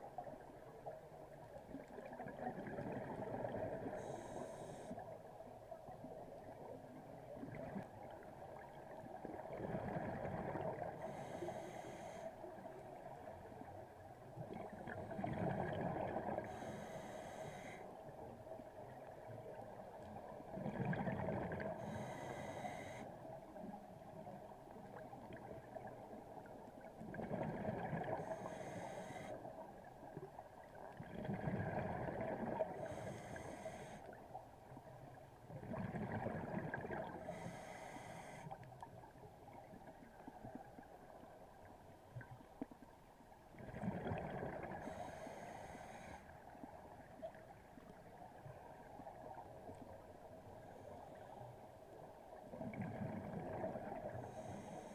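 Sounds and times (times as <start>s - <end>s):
diver breathing through regulator: 4.0s - 5.0s, 11.0s - 12.4s, 16.4s - 17.9s, 21.7s - 23.1s, 28.1s - 29.4s, 32.6s - 34.2s, 37.1s - 38.6s, 44.8s - 46.3s, 54.2s - 54.9s.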